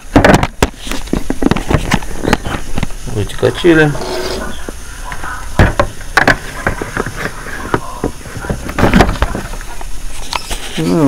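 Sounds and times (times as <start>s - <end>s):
plastic knocking and scraping: 0.0s - 3.0s, 5.6s - 9.9s.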